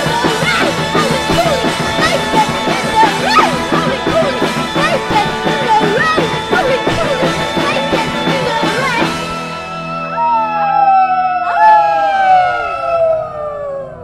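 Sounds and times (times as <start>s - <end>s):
voice howling: 0.0s - 9.2s, 9.8s - 14.0s
sung vocals: 0.0s - 9.6s
drums: 0.0s - 13.3s
keyboard: 0.0s - 14.0s.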